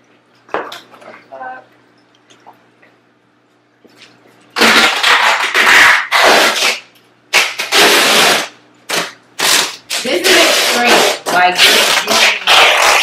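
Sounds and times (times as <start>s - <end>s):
duct tape ripping off roll: 4.6s - 13.0s.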